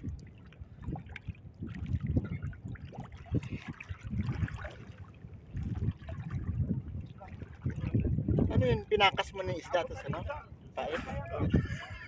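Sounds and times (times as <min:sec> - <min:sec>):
sea water splashing: 0:00.0 - 0:09.9.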